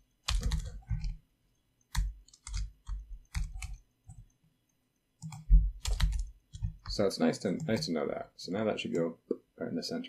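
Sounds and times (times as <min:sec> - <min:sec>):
keyboard typing: 0:00.2 - 0:01.2, 0:01.8 - 0:08.0.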